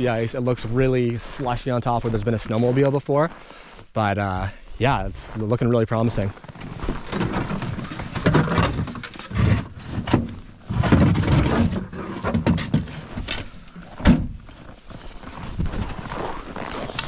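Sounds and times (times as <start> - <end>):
jacket rustling against microphone: 12.9 - 17.0
footsteps crunching through snow: 14.5 - 17.0.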